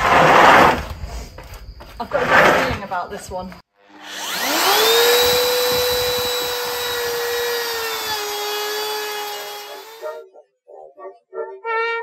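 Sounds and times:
electric router whining: 3.8s - 10.2s.

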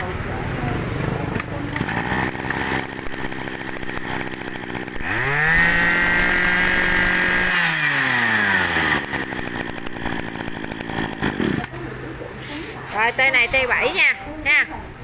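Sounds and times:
brush cutter engine revving: 1.2s - 11.8s.

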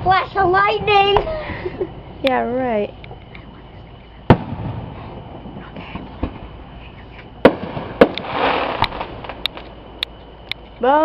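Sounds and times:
firework pops: 4.2s - 6.6s, 7.2s - 10.7s
firework boom with rumble: 4.2s - 6.7s, 7.4s - 9.4s
firework sharp bangs: 4.2s - 10.0s.

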